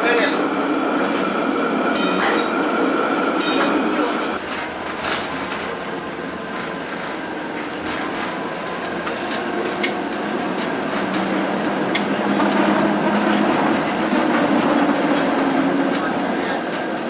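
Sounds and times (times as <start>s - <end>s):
streetcar body rumble and rattle: 0.9s - 17.0s
wheels clicking on track: 4.4s - 17.0s.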